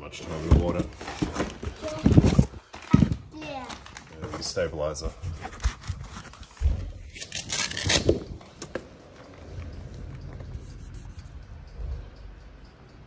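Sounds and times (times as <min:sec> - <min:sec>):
rubbing and handling: 0:00.2 - 0:11.4
knocks and scrapes of handling: 0:04.2 - 0:11.2.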